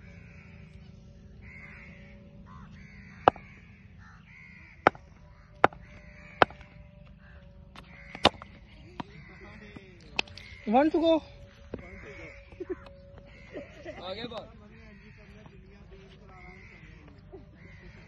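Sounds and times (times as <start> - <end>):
crows cawing: 0.0 - 18.0
cricket bat striking ball: 3.2 - 3.6, 4.8 - 6.7, 7.8 - 9.2.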